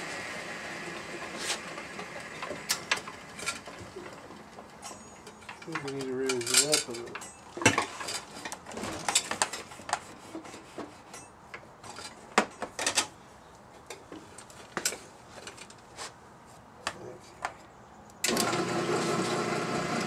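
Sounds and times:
tools clinking in metal bucket: 0:04.8 - 0:09.6.

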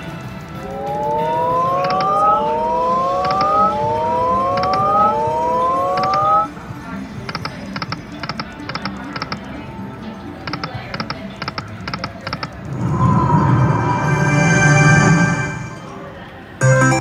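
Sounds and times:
slot machine win jingle: 0:00.5 - 0:06.6, 0:16.6 - 0:17.0
electronic reel-stop ticks: 0:00.6 - 0:06.5.

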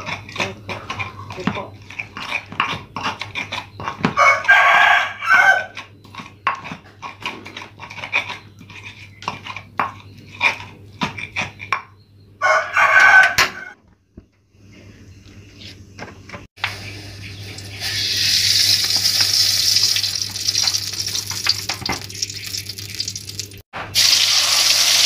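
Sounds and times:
rooster crowing: 0:04.1 - 0:05.8, 0:12.4 - 0:13.8.

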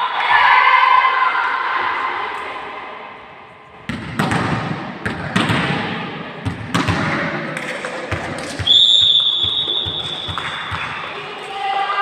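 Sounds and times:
voices in a large hall: 0:00.0 - 0:12.0
volleyball thuds echoing: 0:03.8 - 0:11.1.

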